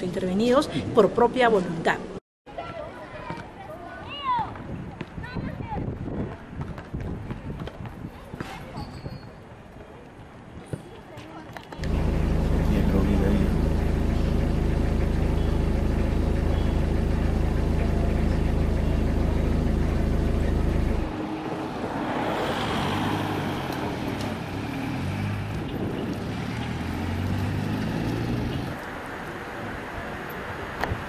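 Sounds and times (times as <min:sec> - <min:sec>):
traffic noise: 0:00.0 - 0:31.0
vehicle engine hum: 0:11.8 - 0:31.0.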